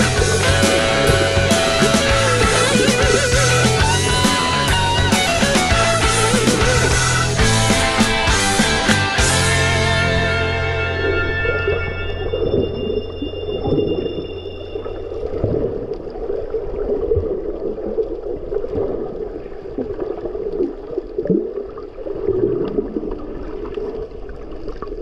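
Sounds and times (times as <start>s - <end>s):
muffled underwater gurgling: 0.0s - 8.0s
held music chord: 0.0s - 13.3s.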